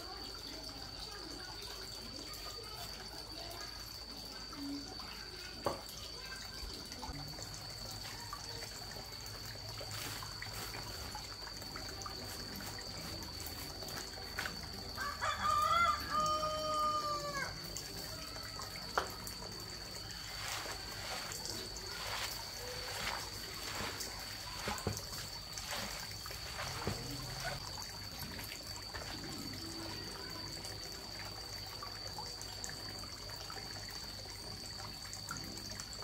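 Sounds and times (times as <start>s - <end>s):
rooster crowing: 15.0s - 17.6s.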